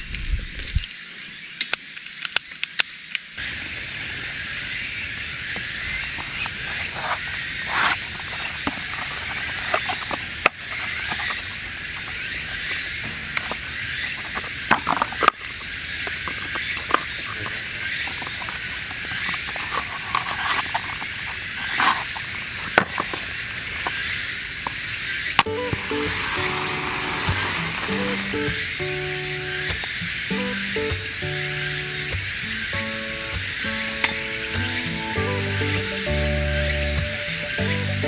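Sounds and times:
steady hiss: 0.0 - 38.0
cardboard box rustling and ticking: 6.2 - 24.0
sharp clicks: 27.2 - 35.0.

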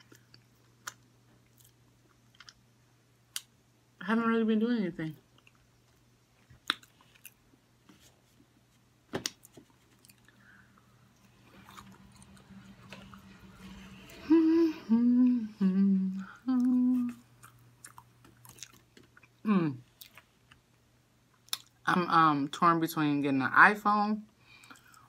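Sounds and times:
woman humming: 13.8 - 17.3.

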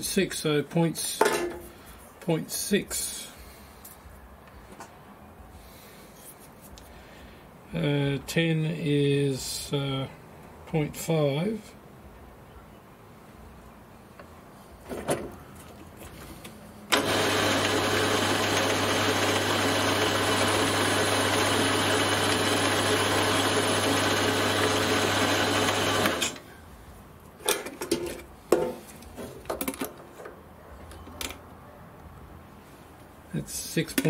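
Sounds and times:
metal lathe whirring: 16.9 - 26.4
tools clicking and knocking: 27.4 - 31.4.

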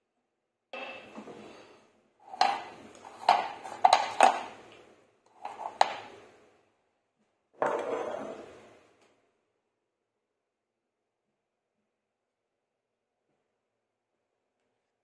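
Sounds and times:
tin cans knocking on countertop: 2.3 - 4.5.

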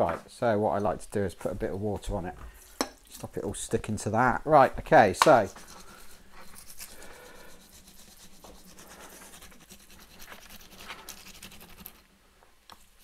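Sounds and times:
garlic scratching on grater: 5.4 - 12.0.

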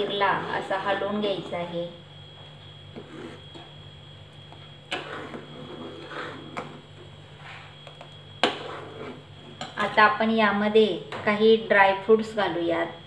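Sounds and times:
steady low hum: 0.0 - 13.0
ladle scraping through pudding: 3.0 - 3.5, 4.9 - 7.8, 8.5 - 9.3.

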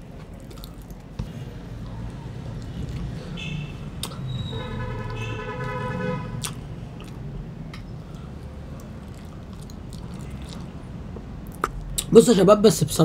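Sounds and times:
person chewing food: 0.0 - 4.4, 6.4 - 7.3, 7.9 - 12.1
wet mouth clicks: 4.0 - 4.4, 6.4 - 7.3, 8.1 - 12.1.

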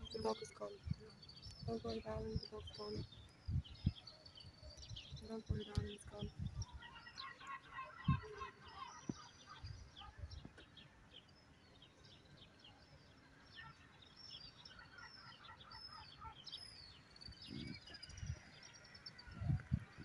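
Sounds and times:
soft low thumps: 0.0 - 4.0, 5.0 - 6.7
small birds chirping: 0.0 - 20.0.

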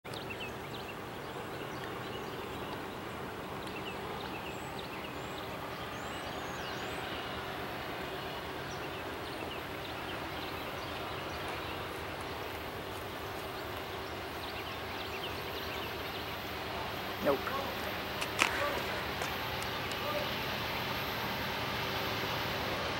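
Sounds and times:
small birds chirping: 0.1 - 21.0
distant diesel locomotive rumble: 0.1 - 22.9.

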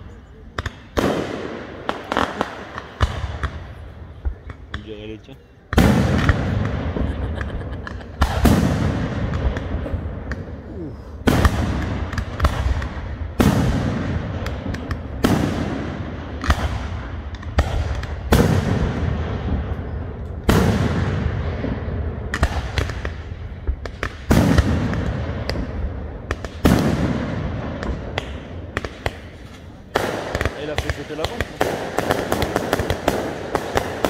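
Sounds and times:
small sharp firework pops: 0.5 - 4.9, 11.3 - 15.6, 22.3 - 34.0.

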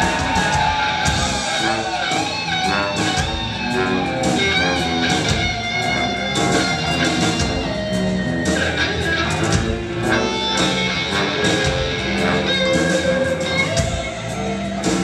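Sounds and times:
electric guitar: 0.0 - 15.0
live rock band playing: 0.0 - 15.0.

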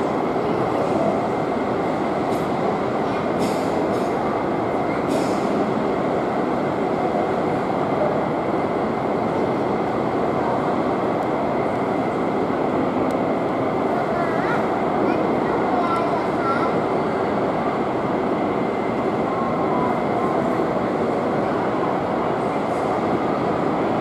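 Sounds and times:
jet engines at taxi power: 0.0 - 24.0.

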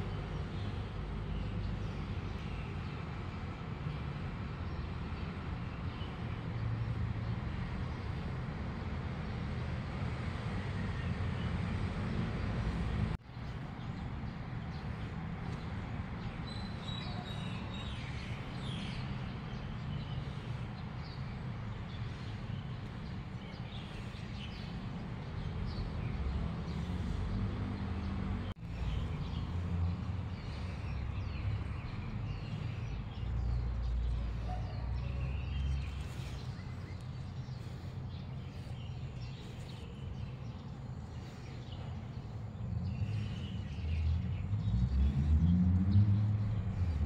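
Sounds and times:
small birds chirping: 0.0 - 47.0
steady low rumble: 35.3 - 43.8.

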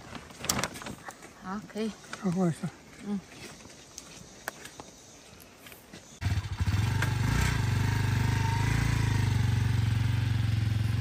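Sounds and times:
small motorcycle engine running: 6.2 - 11.0.

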